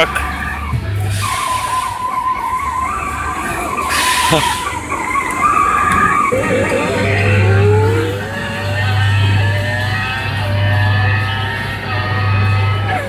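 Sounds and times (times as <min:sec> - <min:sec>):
electronic engine whine: 0:02.4 - 0:10.0
electronic skidding noise: 0:02.8 - 0:09.7
low hum: 0:04.6 - 0:09.7.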